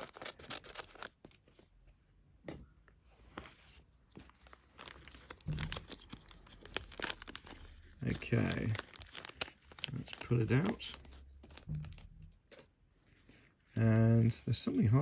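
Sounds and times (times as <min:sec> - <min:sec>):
plastic bag crinkling: 0:00.0 - 0:01.2, 0:04.3 - 0:12.6.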